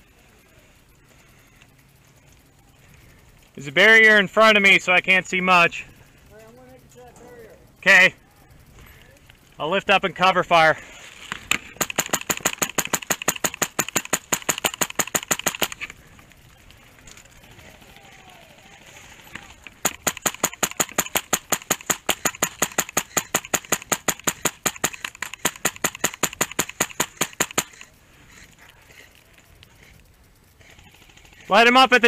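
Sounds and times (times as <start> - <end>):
airsoft rifle firing full-auto: 11.4 - 16.2, 19.2 - 29.0, 30.6 - 32.0.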